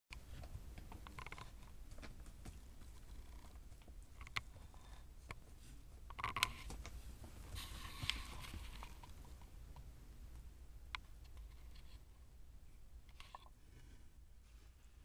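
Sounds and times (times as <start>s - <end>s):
kittens' paws scuffling on carpet: 0.2s - 9.6s.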